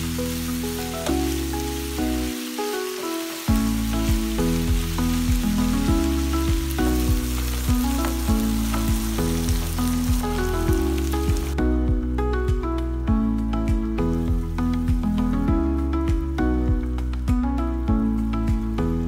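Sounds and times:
food sizzling in a pan: 0.0s - 11.6s
background music with beat: 0.0s - 19.0s.

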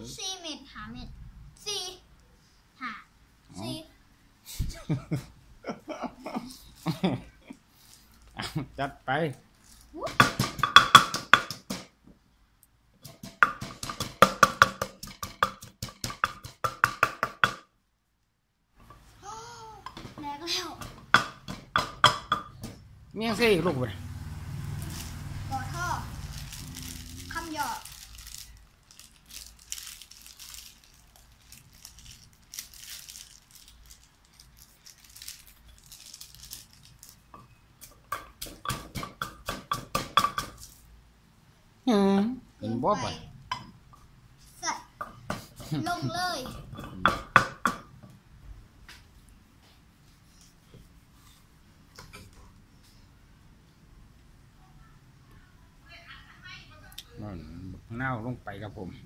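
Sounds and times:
pestle pounding in a clay mortar: 10.1s - 11.9s, 13.0s - 17.6s, 20.8s - 22.9s, 38.1s - 40.6s, 46.5s - 47.9s
garlic skins crinkling: 26.1s - 37.3s.

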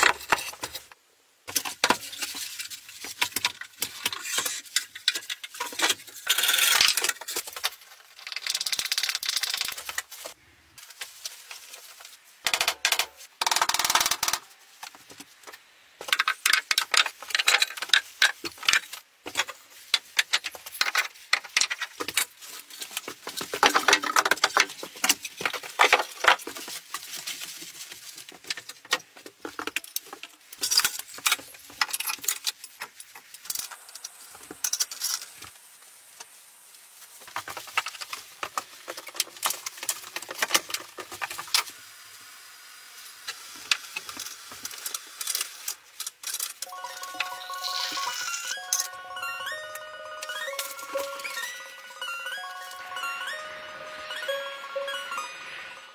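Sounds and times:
rustling: 9.7s - 12.4s, 17.9s - 31.7s.

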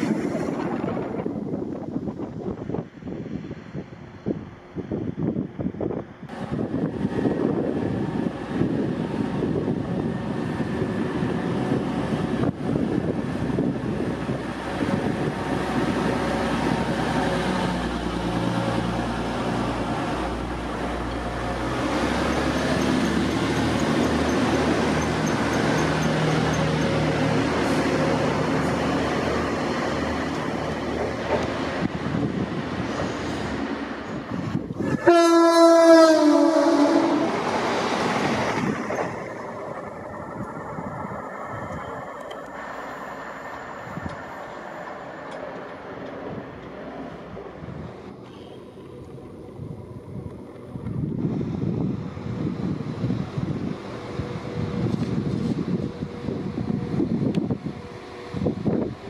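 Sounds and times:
diesel train rumbling past: 0.0s - 59.0s
train horn: 34.8s - 37.5s.

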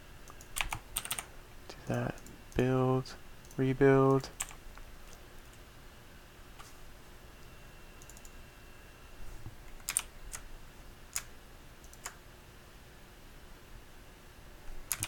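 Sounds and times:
faint room hiss: 0.0s - 15.0s
keyboard clicks: 0.2s - 2.7s, 8.0s - 8.3s, 9.8s - 10.4s, 11.1s - 12.2s.

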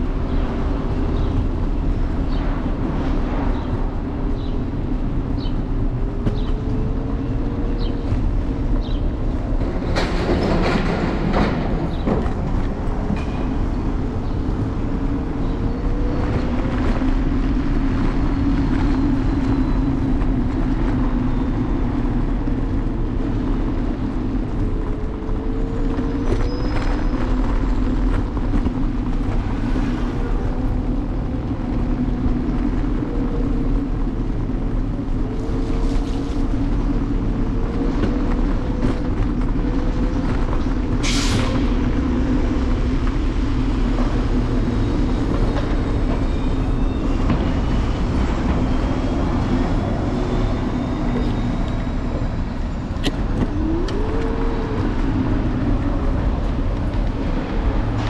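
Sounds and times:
wheels rumbling on road: 0.0s - 58.0s
wind on microphone: 0.0s - 58.0s.

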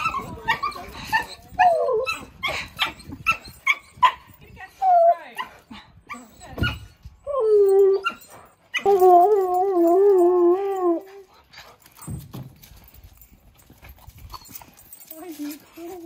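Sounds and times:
dog howling vocalisations: 8.8s - 11.2s.

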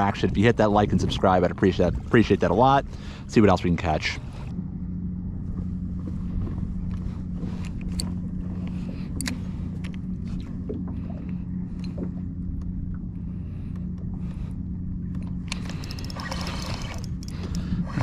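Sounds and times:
electric trolling motor humming: 0.0s - 18.0s.

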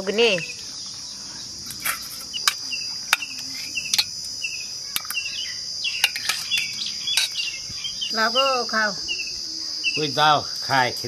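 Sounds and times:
bird chirps: 0.0s - 10.2s
insects buzzing: 0.0s - 11.0s
ladle clinking against steel: 6.0s - 7.4s.

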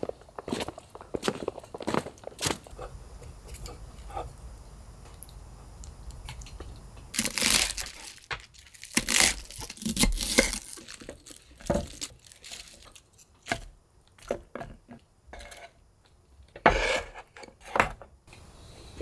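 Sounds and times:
leafy vegetables rustling and tearing: 6.1s - 13.4s.

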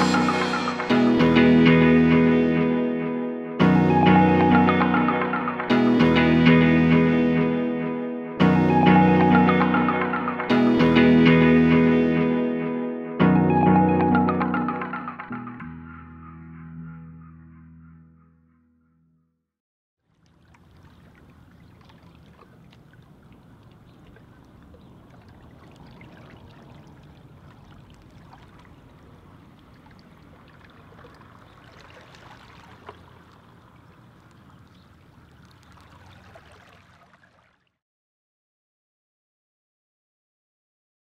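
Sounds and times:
sea water lapping: 20.0s - 37.8s
water splash: 20.0s - 37.8s.

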